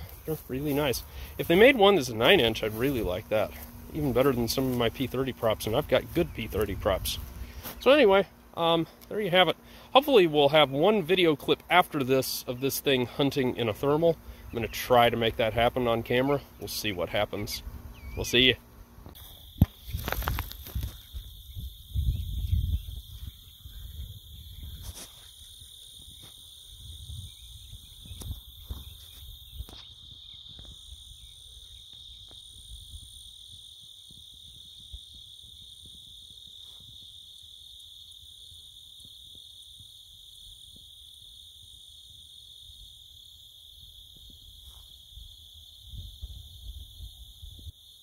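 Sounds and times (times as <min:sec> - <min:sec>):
insects trilling: 0:00.0 - 0:48.0
low rumble on microphone: 0:19.8 - 0:25.0.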